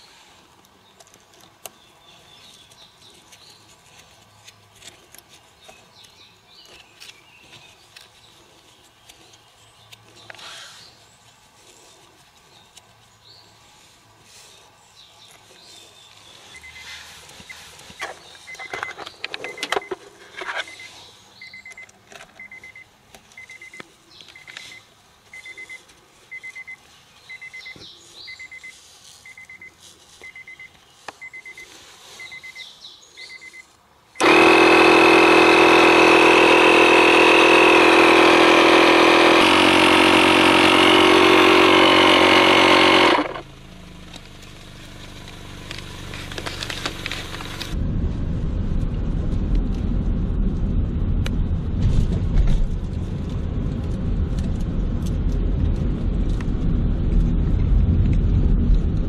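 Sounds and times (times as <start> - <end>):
high electronic beep: 20.6 - 23.8, 24.4 - 31.6, 32.2 - 32.6, 33.2 - 33.7
electric air compressor running: 34.2 - 47.8.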